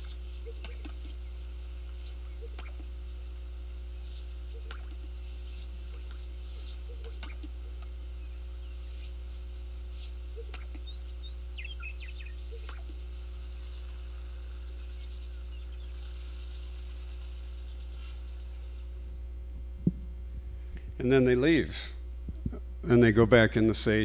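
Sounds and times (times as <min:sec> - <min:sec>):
bird calls and chirps: 0:00.0 - 0:03.0, 0:03.8 - 0:19.2
low hum: 0:00.0 - 0:24.0
fast high bird trill: 0:10.3 - 0:19.0.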